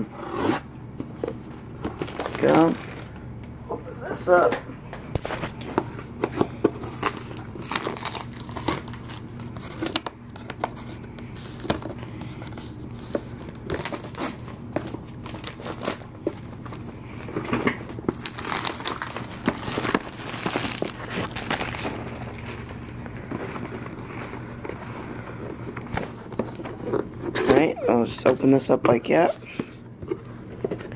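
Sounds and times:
cardboard packaging crinkling and tearing: 1.9 - 3.1, 6.3 - 27.7.

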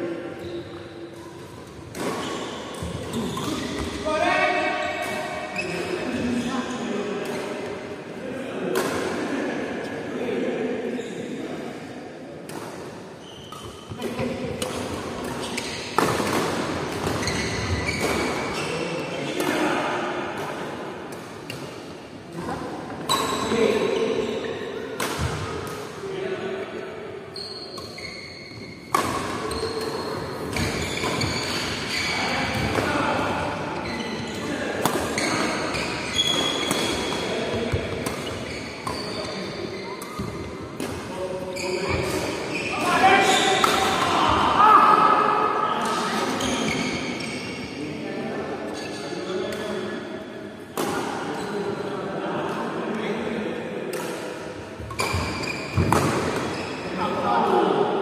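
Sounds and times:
shoes squeaking on court: 0.4 - 4.0, 13.2 - 18.9, 27.3 - 32.7, 33.8 - 34.5, 35.1 - 40.6, 41.4 - 43.9, 46.3 - 47.6, 54.8 - 56.9
rackets hitting shuttlecock: 1.9 - 3.9, 25.0 - 25.9, 28.9 - 31.8, 34.8 - 39.1, 53.9 - 56.5.

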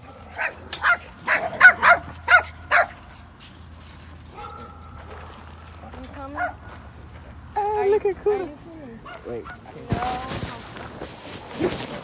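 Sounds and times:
dog barking: 0.0 - 3.1, 4.3 - 5.5, 9.0 - 9.6.

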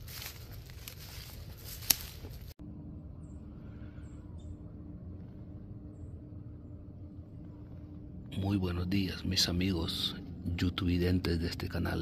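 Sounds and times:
dry leaves rustling: 0.0 - 2.6
steady low hum: 0.0 - 12.0.

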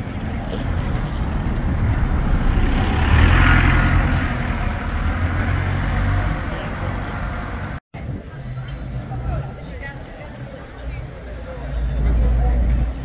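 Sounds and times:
bus diesel engine drone: 0.0 - 7.8.

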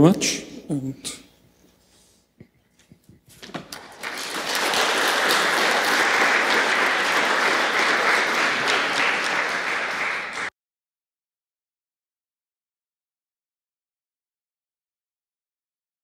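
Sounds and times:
audience applauding: 3.5 - 10.5.

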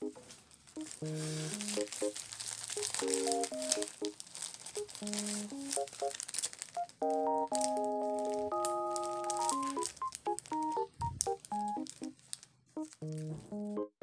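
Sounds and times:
plastic packaging crinkling: 0.0 - 13.7
soft keyboard music: 0.0 - 14.0.

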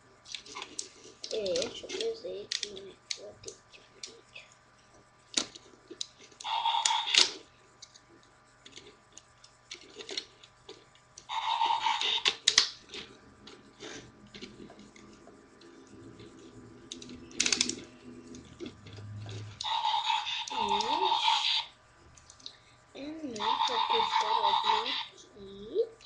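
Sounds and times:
plastic toy clicking and rattling: 0.3 - 4.2, 5.4 - 11.3, 11.9 - 13.6, 16.9 - 17.9, 18.7 - 21.5, 23.2 - 25.1.

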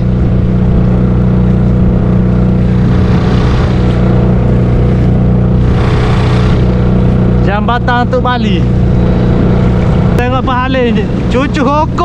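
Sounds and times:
hiss of water and wind: 0.0 - 7.4
outboard motor running: 0.0 - 12.0.

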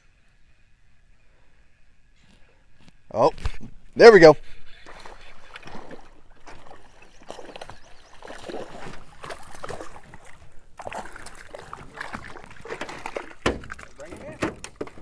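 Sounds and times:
fish splashing at water surface: 4.9 - 15.0
knocks and clatter from boat: 4.9 - 15.0.

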